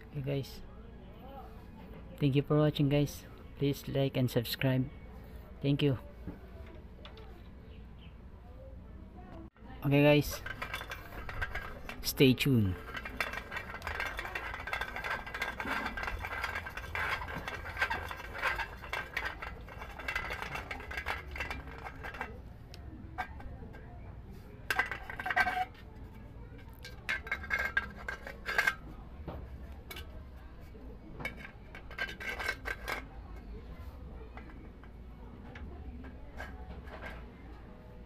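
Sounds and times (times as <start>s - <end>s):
metal clinks and rattles: 9.9s - 37.4s.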